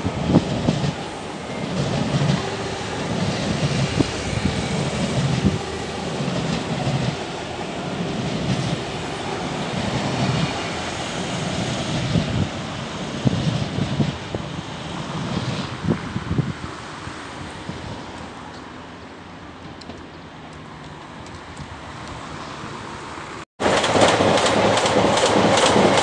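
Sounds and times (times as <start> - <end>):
train wheels rumbling on rails: 0.0 - 18.8, 23.6 - 26.0.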